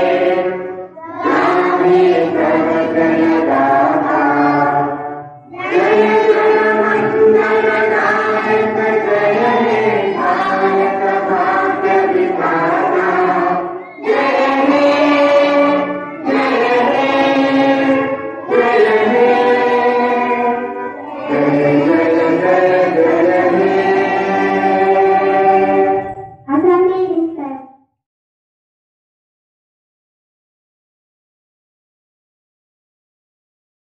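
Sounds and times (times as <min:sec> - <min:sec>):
children singing in unison: 0:00.0 - 0:26.4.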